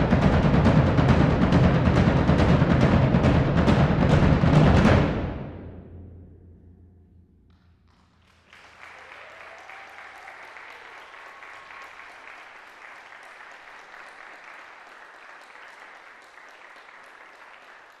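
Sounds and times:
audience applauding: 7.9s - 18.0s.

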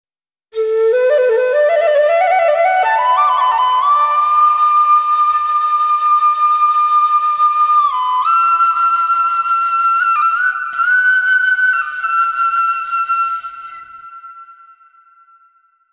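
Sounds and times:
solo flute melody: 0.5s - 15.9s.

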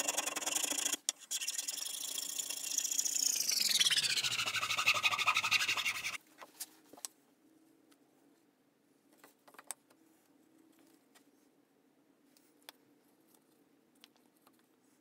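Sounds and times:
metal file rasping on wood: 3.5s - 6.2s
light clicks and taps of tools: 12.3s - 14.8s.

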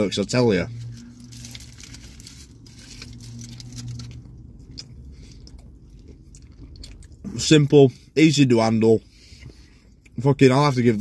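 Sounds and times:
low steady hum: 0.0s - 11.0s
aluminium foil crinkling: 0.8s - 4.3s
person chewing: 0.9s - 7.4s.

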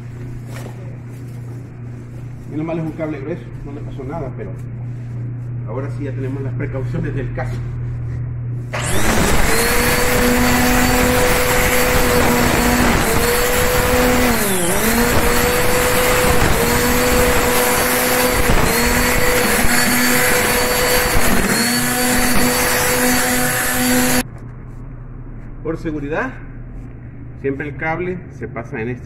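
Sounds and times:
electric string trimmer motor whine: 8.7s - 24.2s.

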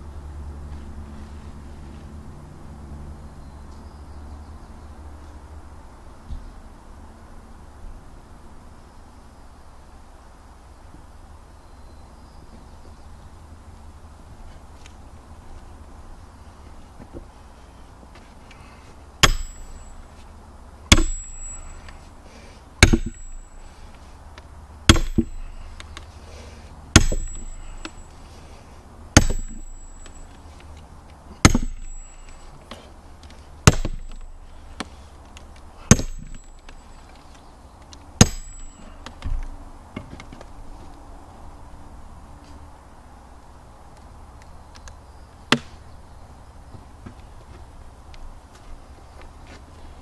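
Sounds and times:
sledgehammer striking steel wedge: 19.2s - 20.0s, 20.9s - 22.0s, 22.8s - 23.7s, 24.9s - 25.6s, 26.9s - 28.1s, 29.1s - 30.4s, 31.4s - 32.5s, 33.6s - 35.0s, 35.8s - 36.8s, 38.2s - 39.0s.

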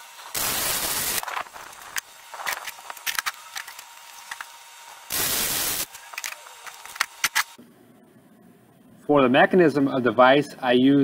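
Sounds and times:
welder arc crackling hiss: 0.0s - 3.0s, 4.3s - 7.6s.

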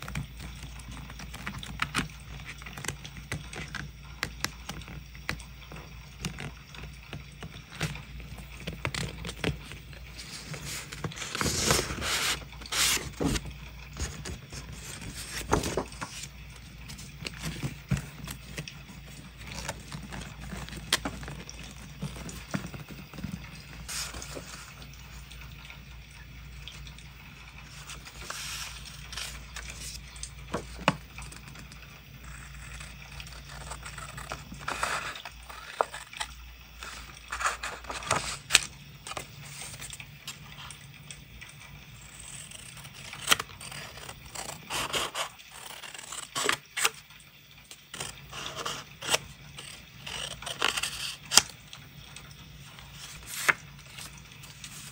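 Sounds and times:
paper rustling: 6.2s - 25.2s, 27.7s - 31.7s, 32.3s - 40.4s, 52.7s - 54.9s
scissors snipping paper: 42.2s - 47.0s, 48.0s - 51.5s.

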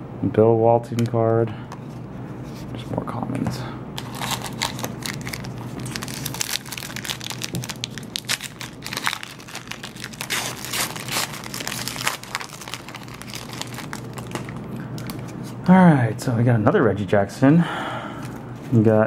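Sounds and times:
foil wrapper crinkling and tearing: 4.0s - 15.4s.

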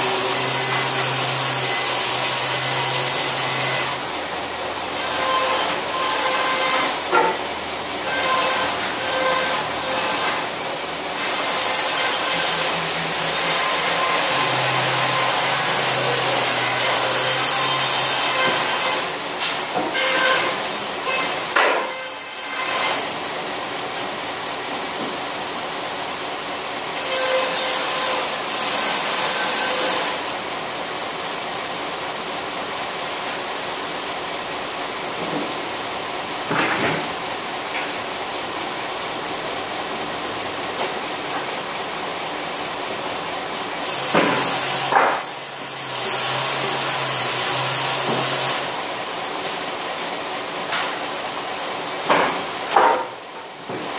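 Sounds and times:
saw blade cutting wood: 0.0s - 4.0s, 5.0s - 10.5s, 11.2s - 23.2s, 27.0s - 30.2s, 43.8s - 48.7s, 52.1s - 53.2s.

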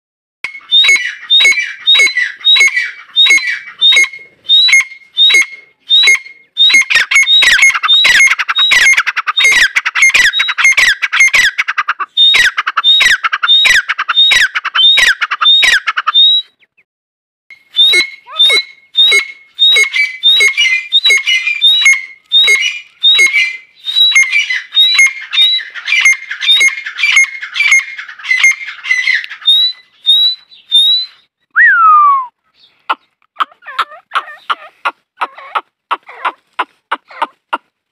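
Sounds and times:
francolin calling: 0.5s - 11.6s, 17.5s - 36.3s.

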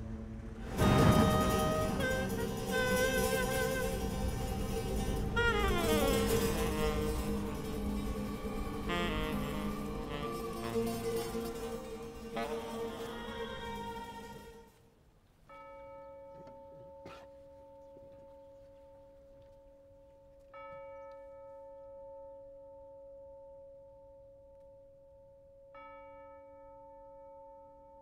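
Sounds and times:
bell-like tone ringing: 0.7s - 14.7s.

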